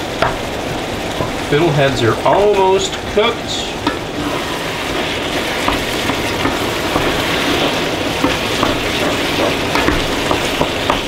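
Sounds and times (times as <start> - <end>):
vegetables sizzling in a pan: 0.0 - 11.0
wooden spoon scraping a pan: 3.8 - 11.0.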